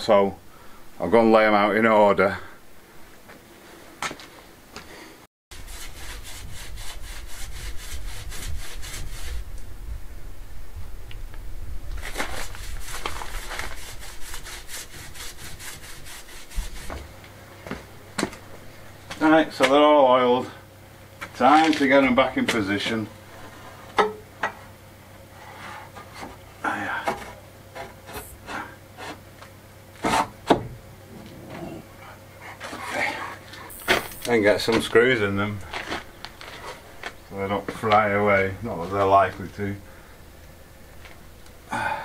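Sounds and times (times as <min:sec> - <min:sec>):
paintbrush scrubbing on wood: 0:05.5 - 0:09.4, 0:12.0 - 0:17.1
wood scraping: 0:11.9 - 0:18.4, 0:21.2 - 0:24.7, 0:25.3 - 0:29.4, 0:30.0 - 0:31.8, 0:32.4 - 0:39.7.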